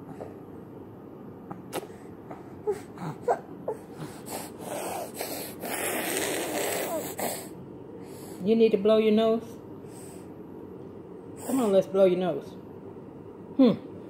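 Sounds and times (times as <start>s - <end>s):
toddler snorting and sniffing: 1.6s - 8.4s.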